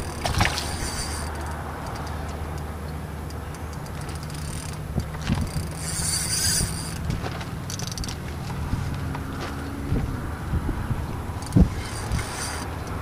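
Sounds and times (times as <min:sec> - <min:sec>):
fishing reel ticking: 0:00.0 - 0:08.2, 0:11.4 - 0:13.0.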